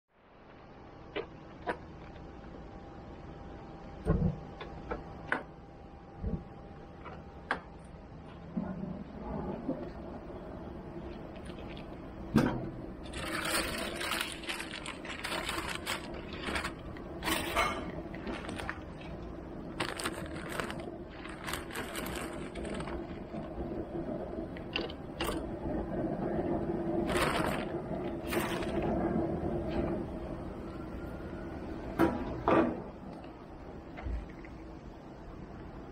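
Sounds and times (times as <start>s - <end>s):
steady low hum: 0.1s - 35.9s
handling rustles and scrapes: 13.0s - 23.8s, 27.0s - 29.0s.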